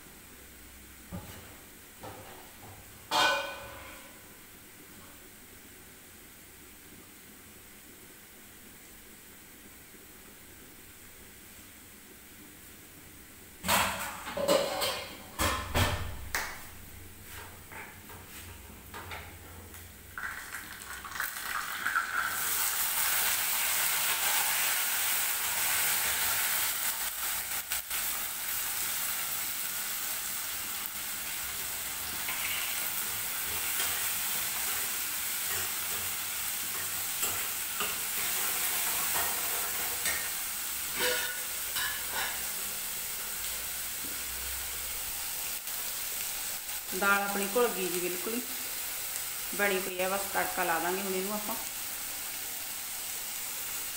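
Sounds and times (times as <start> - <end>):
onion sizzling in hot oil: 18.2 - 53.9.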